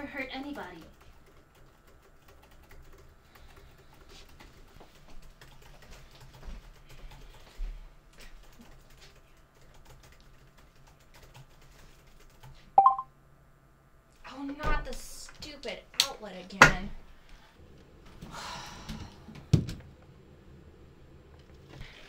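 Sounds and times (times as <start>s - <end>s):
low room hum: 0.0s - 22.0s
laptop keyboard typing: 0.4s - 7.4s, 8.2s - 13.0s.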